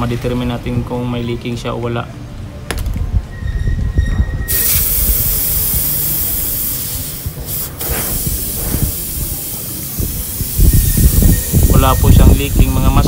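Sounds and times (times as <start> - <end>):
refrigerant hissing out: 4.5 - 13.0.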